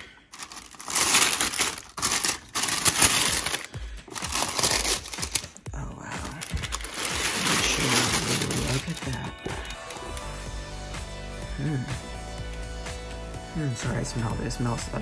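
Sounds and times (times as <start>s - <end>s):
tissue paper rustling: 0.0s - 10.4s.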